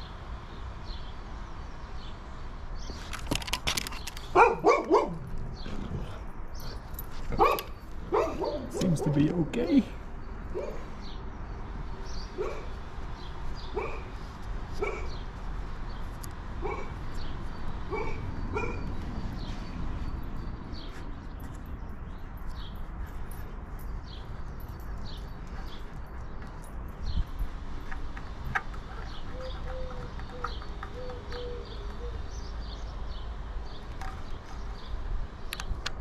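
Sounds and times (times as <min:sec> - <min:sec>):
dog barking: 0:04.3 - 0:05.2, 0:07.4 - 0:09.2, 0:10.5 - 0:10.9, 0:12.4 - 0:12.7, 0:13.7 - 0:14.1, 0:14.8 - 0:15.2, 0:16.6 - 0:17.0, 0:17.9 - 0:18.8.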